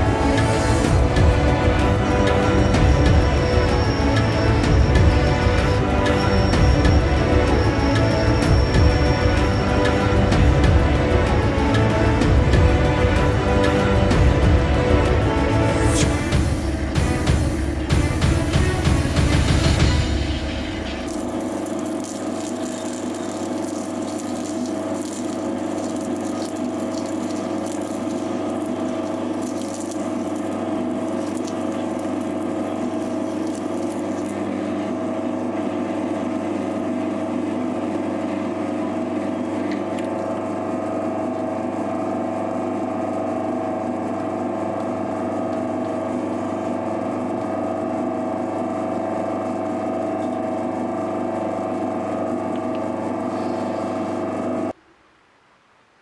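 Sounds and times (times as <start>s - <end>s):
metal lathe motor hum: 0.0s - 54.8s.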